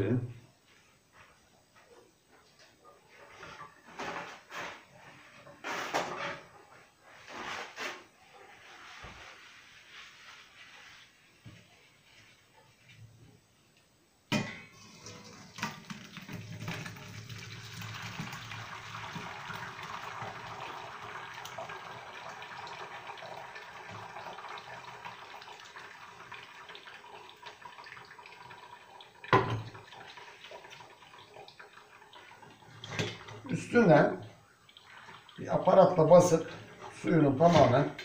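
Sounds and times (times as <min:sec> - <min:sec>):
thick liquid pouring into strainer: 0:14.7 - 0:37.0.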